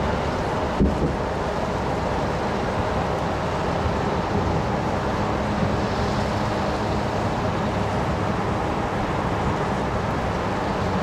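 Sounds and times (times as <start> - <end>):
wind noise on microphone: 0.0 - 1.5
distant city traffic rumble: 0.0 - 11.0.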